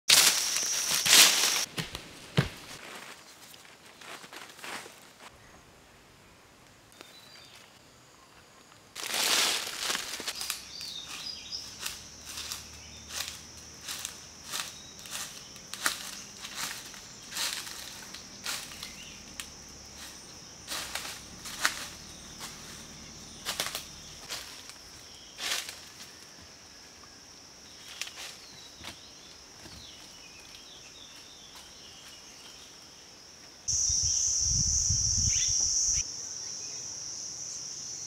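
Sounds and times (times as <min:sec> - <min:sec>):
high-pitched insect drone: 0:00.1 - 0:01.7, 0:10.4 - 0:24.4, 0:33.7 - 0:38.0
footsteps crunching through dry leaves: 0:00.1 - 0:05.3, 0:09.0 - 0:26.2.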